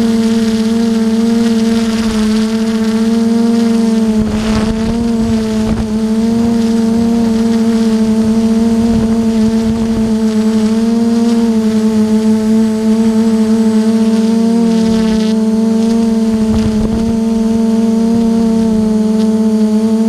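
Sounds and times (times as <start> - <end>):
drone propellers humming: 0.0 - 20.0
wind noise on microphone: 1.4 - 12.8, 14.7 - 19.2.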